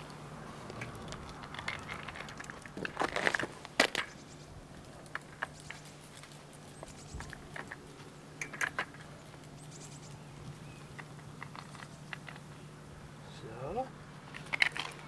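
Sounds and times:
steady low hum: 0.0 - 15.0
metal rails clicking and knocking: 4.8 - 9.8, 14.3 - 15.0.

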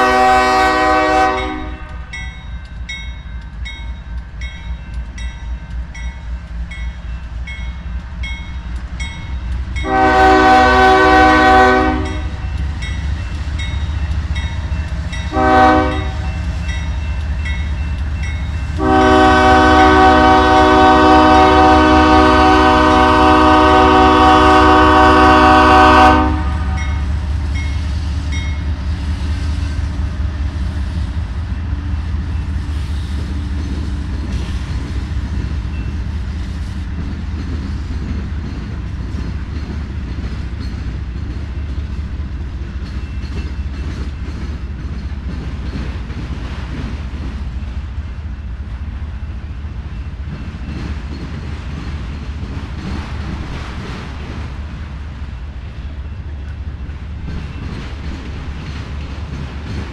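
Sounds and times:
locomotive air horn blasts: 0.0 - 2.2, 9.8 - 12.4, 15.3 - 16.3, 18.8 - 27.0
low rumble of moving train: 0.0 - 59.9
crossing bell dinging: 1.3 - 20.3, 26.3 - 28.9.

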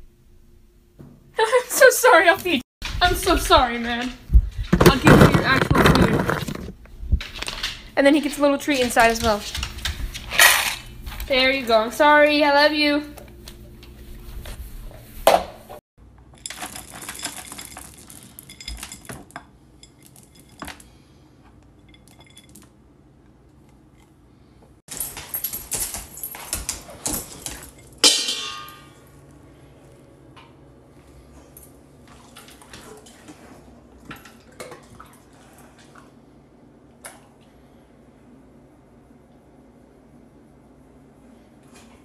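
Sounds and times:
dog food rattling in metal bowls: 16.4 - 19.3
metal bowl clanging: 27.7 - 29.1.

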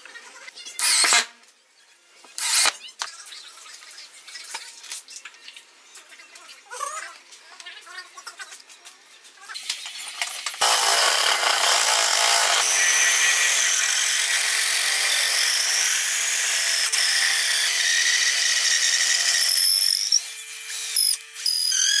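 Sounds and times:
power drill whining: 0.8 - 1.3, 2.4 - 2.7, 10.6 - 22.0.

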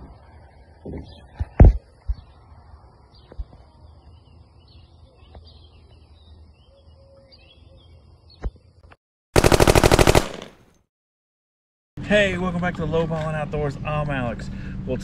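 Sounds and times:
birds chirping faintly: 0.0 - 8.9
loud rapid rattle: 9.4 - 10.5.

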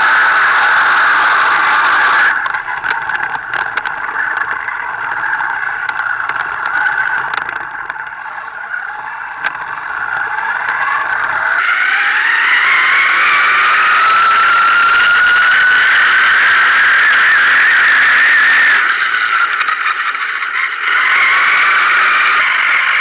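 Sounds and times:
toy car motor whining: 0.0 - 23.0
clicks and rattles: 2.3 - 8.4, 9.3 - 11.6.

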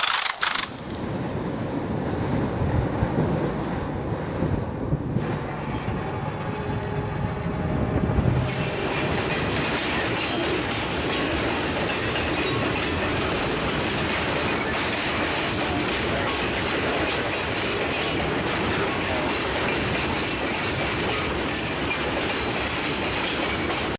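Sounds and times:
low rumbling: 0.8 - 9.6
train wheels rolling past: 1.0 - 23.9
wheels clicking over rail joint: 8.4 - 23.9.

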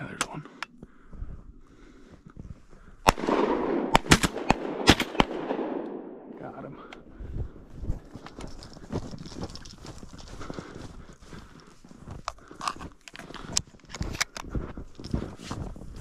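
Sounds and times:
boots crunching through snow: 7.8 - 12.6.

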